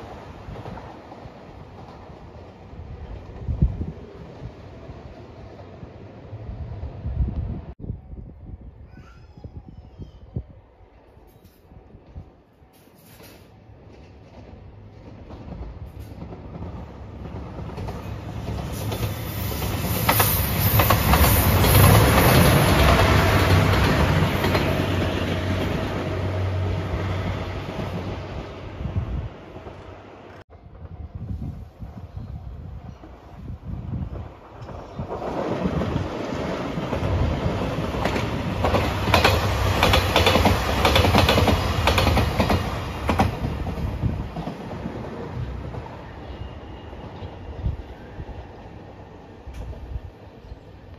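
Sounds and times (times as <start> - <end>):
train engine drone passing: 13.6 - 50.9
wheels clacking over rail joints: 34.6 - 46.0.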